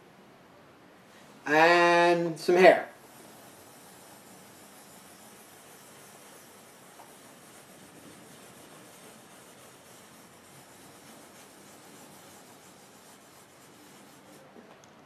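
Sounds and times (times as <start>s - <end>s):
pencil scratching on paper: 2.5s - 14.5s.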